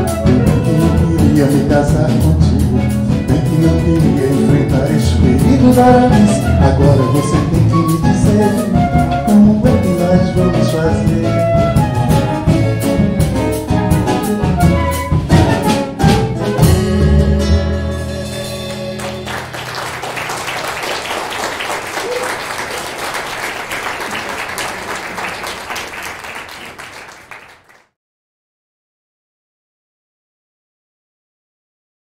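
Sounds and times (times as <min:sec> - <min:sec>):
acoustic band playing: 0:00.0 - 0:27.3
audience applauding: 0:18.7 - 0:27.9.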